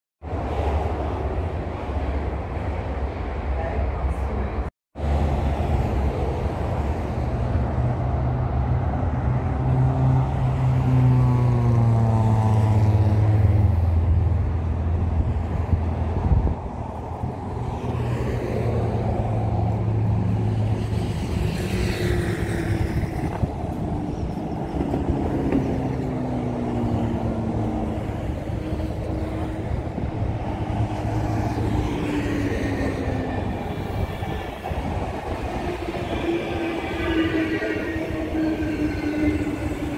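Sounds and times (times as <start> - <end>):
cars and trucks passing: 0.2 - 39.9.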